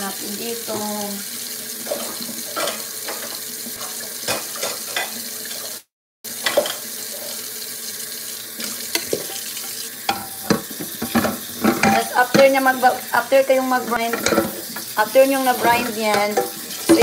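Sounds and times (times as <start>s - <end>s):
dishes clattering in sink: 1.8s - 5.7s, 6.3s - 7.4s, 8.6s - 13.2s, 13.8s - 17.0s
tap running into sink: 8.6s - 12.7s.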